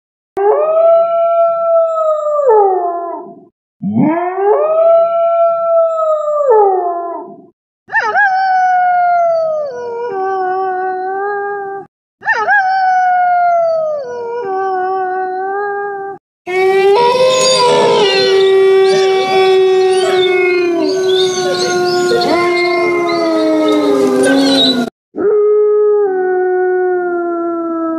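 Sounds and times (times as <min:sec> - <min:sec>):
wolf howling: 0:12.2 - 0:27.9.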